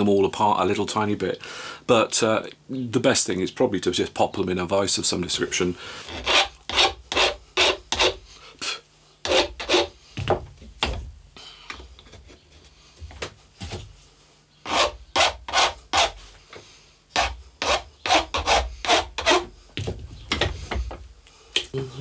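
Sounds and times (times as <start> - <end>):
hand file rasping on metal: 6.0 - 8.2, 9.2 - 10.0, 14.6 - 16.2, 17.1 - 19.5.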